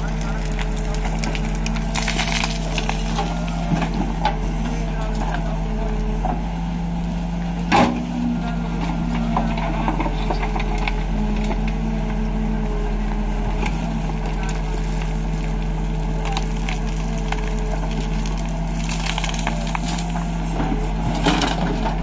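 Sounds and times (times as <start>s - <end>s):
rocks rattling into trolley: 0.0s - 4.4s, 14.3s - 22.0s
stones knocking and crunching: 0.0s - 4.4s, 14.6s - 20.3s
diesel engine running: 0.0s - 22.0s
bucket scraping rocky soil: 0.2s - 4.8s, 14.6s - 22.0s.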